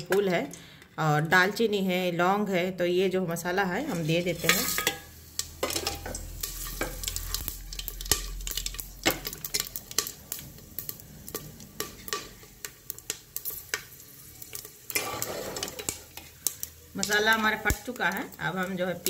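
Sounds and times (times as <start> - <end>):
spices sizzling in hot oil: 0.0 - 19.0
oil popping and crackling: 3.9 - 19.0.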